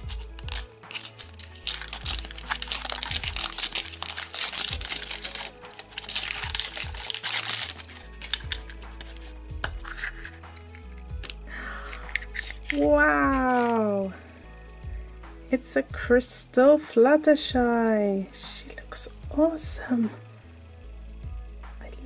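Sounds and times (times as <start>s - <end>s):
plastic wrapper crinkling and tearing: 0.0s - 14.0s.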